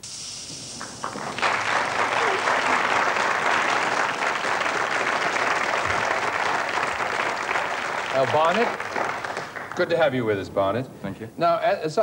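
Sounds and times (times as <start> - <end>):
short hiss: 0.0 - 2.9
audience applauding: 0.6 - 10.9.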